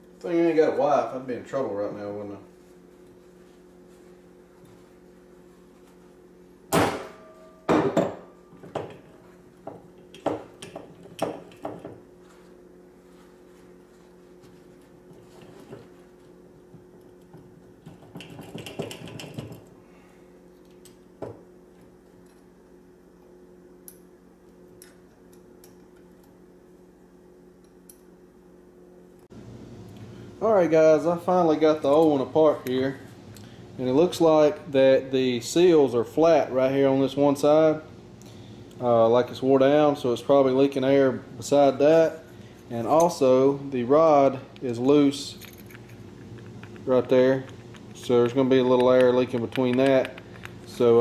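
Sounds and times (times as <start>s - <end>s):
low steady hum: 0.0s - 51.0s
handling noises of metal parts: 45.1s - 51.0s.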